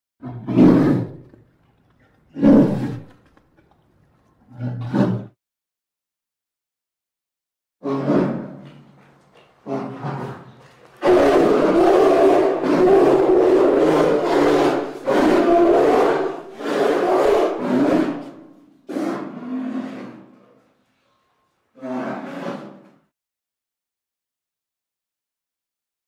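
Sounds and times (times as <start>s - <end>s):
creature roaring: 0.2s - 1.3s, 9.6s - 20.3s, 21.8s - 22.8s.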